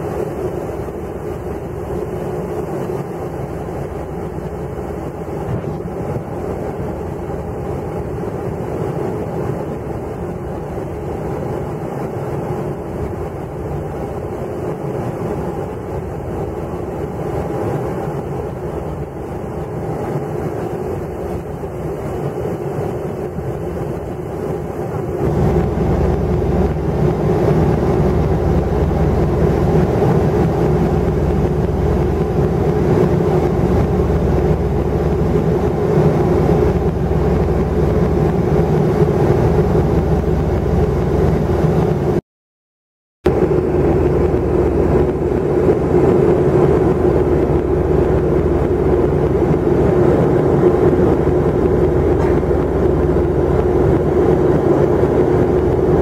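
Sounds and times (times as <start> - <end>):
jet engine cabin drone: 0.0 - 42.2, 43.2 - 56.0.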